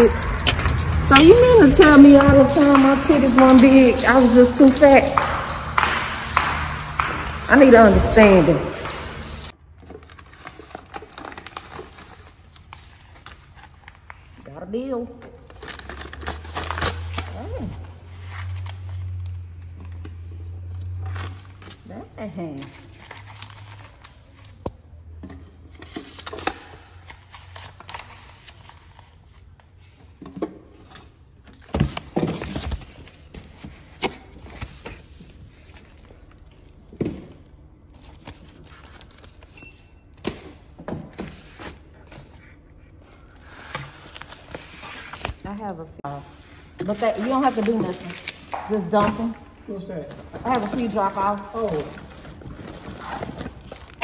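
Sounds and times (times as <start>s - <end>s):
paper mail rustling: 8.2s - 14.4s, 31.6s - 39.6s.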